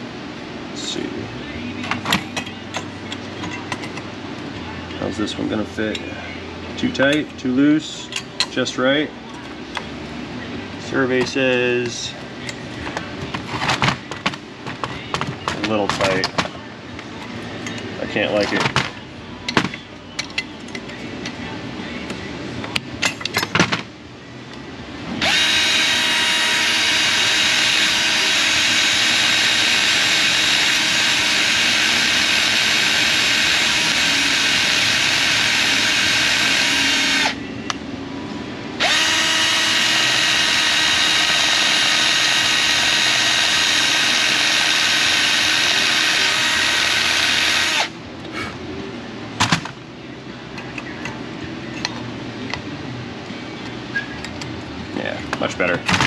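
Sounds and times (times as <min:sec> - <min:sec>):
drill sanding drum grinding metal: 0:25.2 - 0:37.3, 0:38.8 - 0:47.9.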